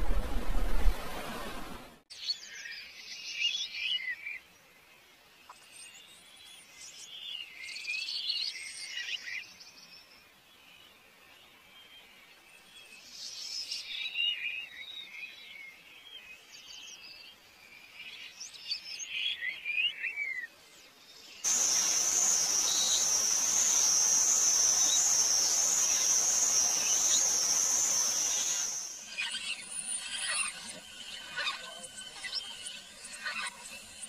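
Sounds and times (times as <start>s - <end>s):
hiss: 21.5s - 29.4s
birds chirping and whistling: 21.5s - 34.0s
high-pitched insect drone: 21.5s - 34.0s.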